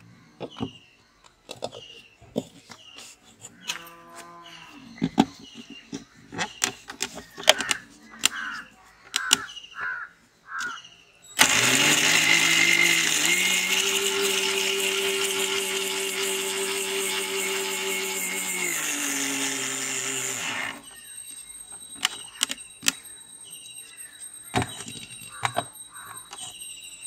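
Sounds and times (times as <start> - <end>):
mixer grinder motor whining: 11.4 - 21.0.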